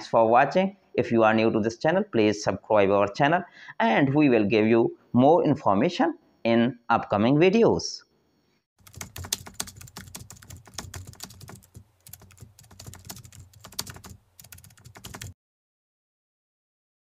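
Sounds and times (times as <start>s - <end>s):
computer keyboard typing: 8.8s - 15.4s.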